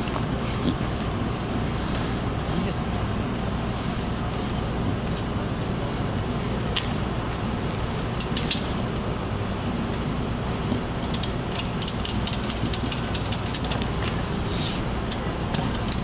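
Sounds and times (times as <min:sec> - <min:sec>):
idling vehicle engines: 0:00.0 - 0:16.0
sharp metallic clicks: 0:08.2 - 0:09.1, 0:11.0 - 0:14.1, 0:15.1 - 0:16.0.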